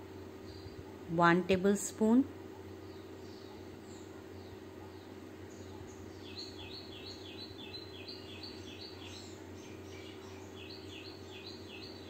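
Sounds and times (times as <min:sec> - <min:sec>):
faint low hum: 0:00.0 - 0:12.0
bird chirping: 0:02.7 - 0:12.0.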